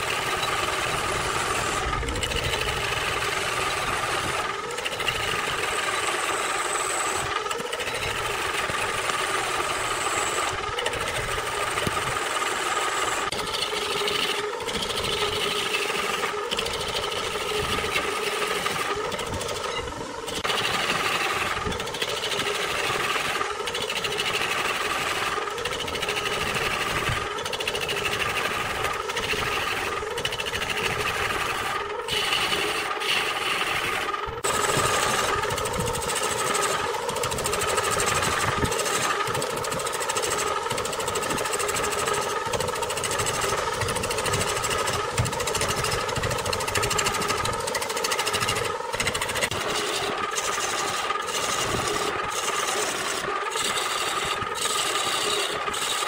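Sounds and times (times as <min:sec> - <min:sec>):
wood lathe whirring: 0:00.0 - 0:56.0
turning tool scraping wood: 0:13.0 - 0:56.0.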